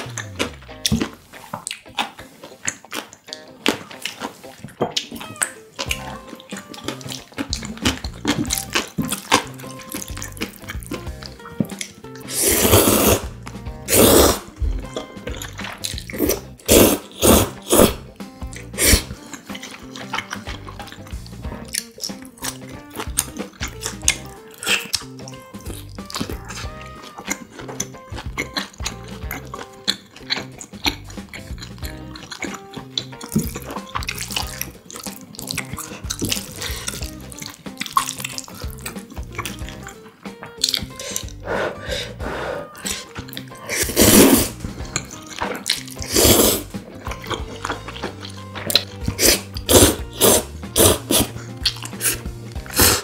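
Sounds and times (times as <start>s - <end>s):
chewing and mouth noise: 0.0s - 53.0s
chopsticks stirring sticky noodles: 5.8s - 53.0s
wet noodle slurps: 12.2s - 13.3s, 13.9s - 14.6s, 15.9s - 18.0s, 18.7s - 21.0s, 41.0s - 53.0s.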